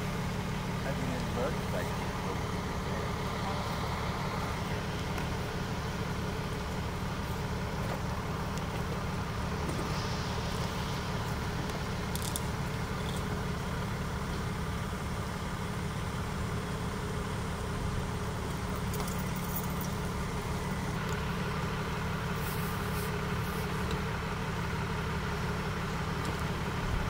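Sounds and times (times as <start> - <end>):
vehicle engine rumbling: 0.0 - 27.0
faint hiss: 6.8 - 14.5.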